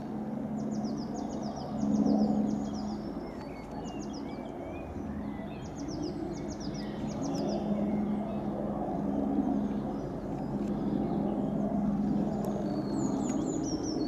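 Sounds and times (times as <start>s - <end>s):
distant engine droning: 0.0s - 14.0s
small birds chirping: 0.0s - 14.0s.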